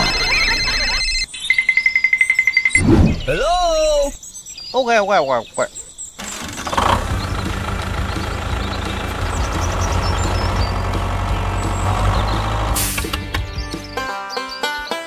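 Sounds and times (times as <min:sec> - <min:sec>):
tractor engine rumbling: 0:00.0 - 0:01.3, 0:06.2 - 0:14.0
loud hiss: 0:12.8 - 0:13.2.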